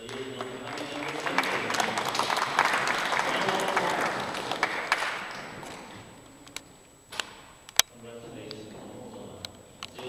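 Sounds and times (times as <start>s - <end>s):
crowd applauding: 0.0s - 6.5s.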